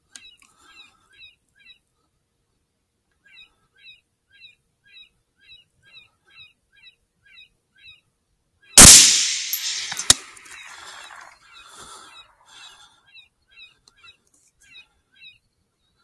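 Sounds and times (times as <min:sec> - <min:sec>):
rifle shot: 0:08.8 - 0:10.4.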